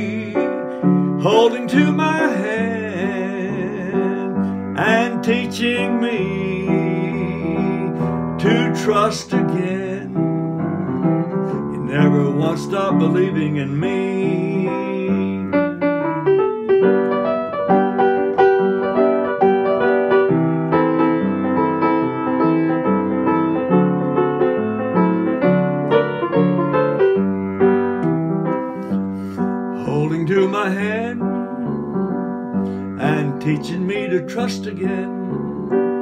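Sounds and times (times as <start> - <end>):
man singing: 0.0 - 17.0, 29.4 - 36.0
gospel piano playing: 0.0 - 36.0.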